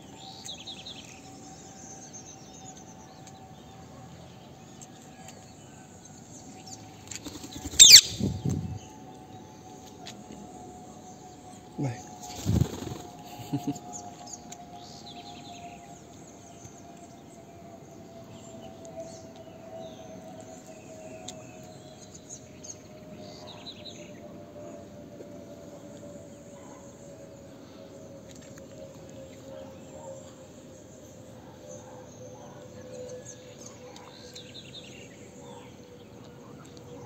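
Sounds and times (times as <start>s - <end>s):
insects: 0.0s - 37.0s
small birds chirping: 6.4s - 8.9s.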